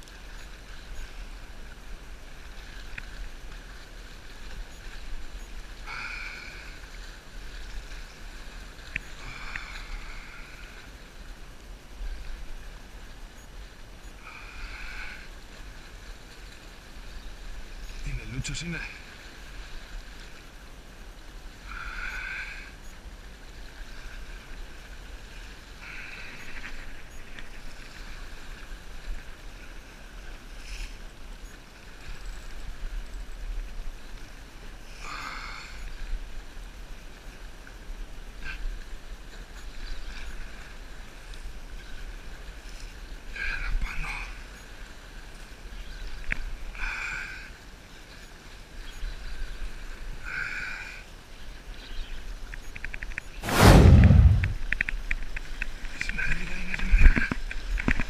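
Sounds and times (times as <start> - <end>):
wind rumble on microphone: 52.5 - 58.0.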